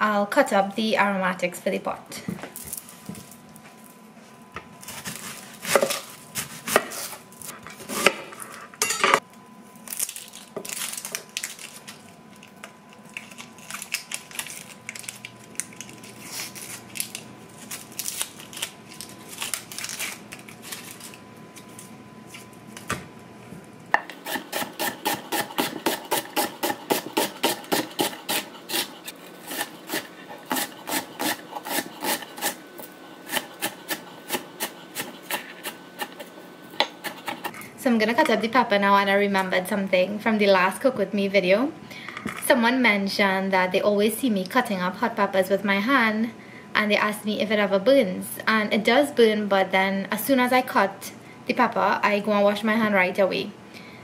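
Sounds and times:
knife chopping on wooden board: 4.9s - 7.1s, 24.0s - 28.9s.

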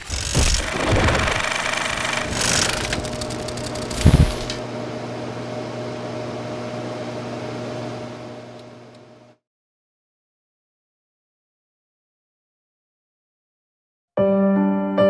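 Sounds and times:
crackling film noise: 0.0s - 4.6s
humming drone: 0.0s - 9.4s.

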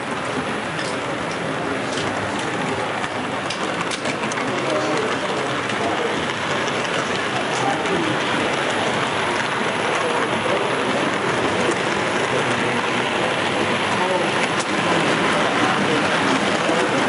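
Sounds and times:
model train rolling on track: 0.0s - 17.0s
faint background chatter: 0.1s - 17.0s.

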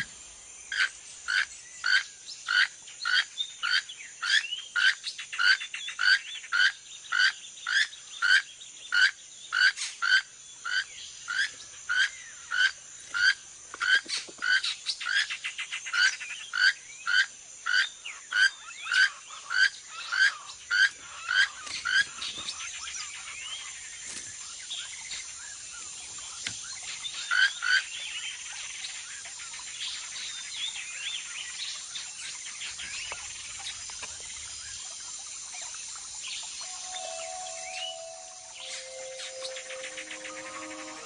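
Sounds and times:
rainforest insects humming: 0.0s - 41.0s
toucan croaking call: 36.6s - 41.0s.

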